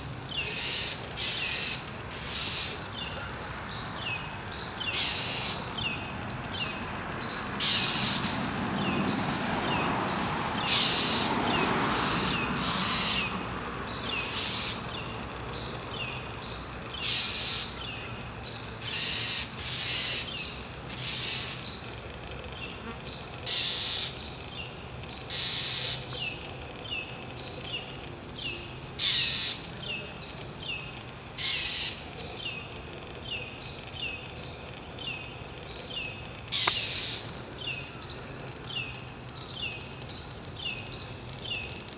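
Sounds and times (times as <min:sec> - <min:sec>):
high insect drone: 0:00.0 - 0:41.9
bird harsh scolding calls: 0:12.0 - 0:13.3.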